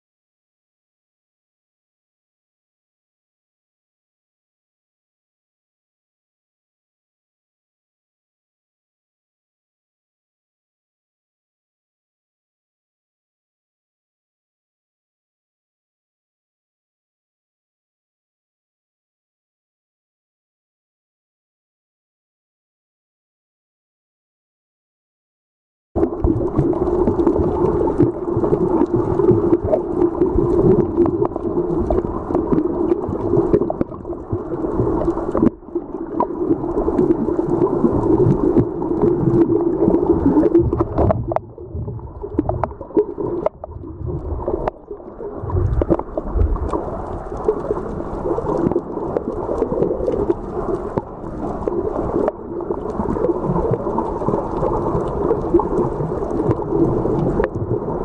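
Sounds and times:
low underwater hum: 26.0 - 58.0.

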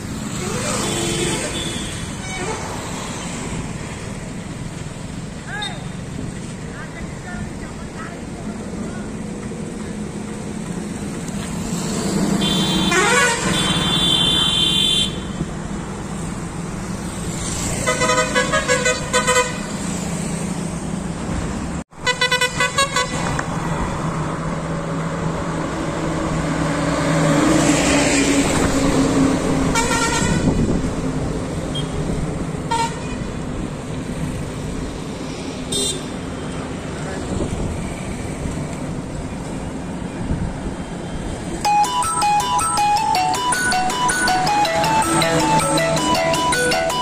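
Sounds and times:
passing motorcycles and cars: 0.0 - 41.8
vehicle horns honking: 0.8 - 2.5, 12.4 - 15.4, 17.8 - 19.7, 22.0 - 23.3, 29.7 - 30.6, 32.7 - 33.3, 35.7 - 36.1.

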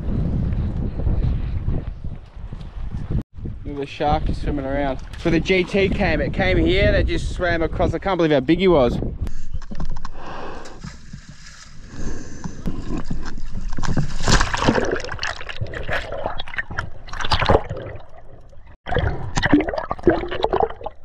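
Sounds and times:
water sloshing and gurgling: 4.7 - 6.6, 9.7 - 21.0.

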